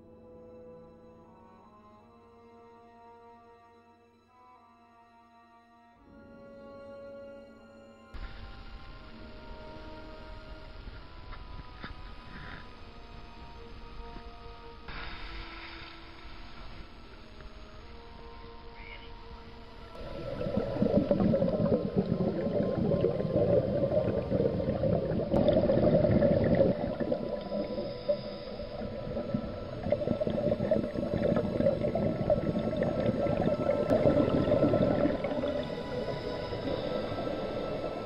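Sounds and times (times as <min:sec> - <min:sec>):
underwater air bubbles rushing: 0:20.0 - 0:38.0.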